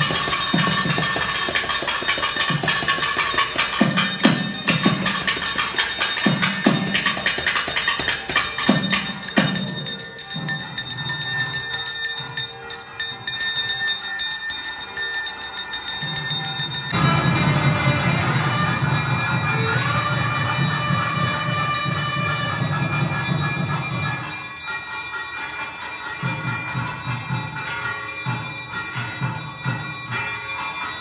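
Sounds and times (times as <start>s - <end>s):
drum strokes: 0.0s - 10.1s, 16.9s - 24.3s
bells ringing: 0.0s - 31.0s.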